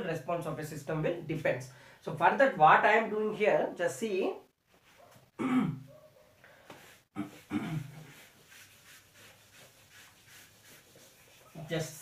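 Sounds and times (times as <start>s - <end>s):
duster rubbing a whiteboard: 6.7s - 12.0s.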